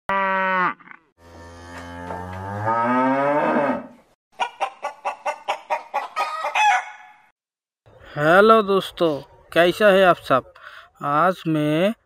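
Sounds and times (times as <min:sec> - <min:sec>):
cow mooing: 0:00.1 - 0:04.0
hen clucking: 0:04.4 - 0:07.1.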